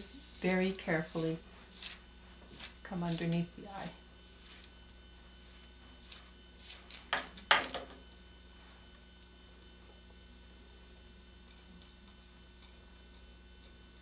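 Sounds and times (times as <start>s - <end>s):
brush swishing through hair: 0.0s - 7.1s
low mains hum: 0.0s - 14.0s.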